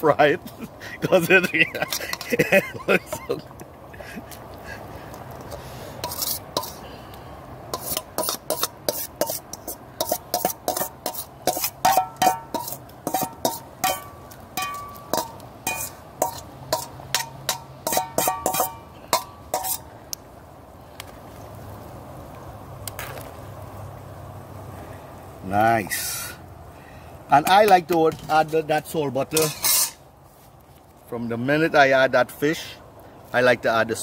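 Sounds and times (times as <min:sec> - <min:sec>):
metal ladle scraping steel bowl: 0:06.0 - 0:06.8, 0:07.7 - 0:19.9, 0:29.4 - 0:30.0.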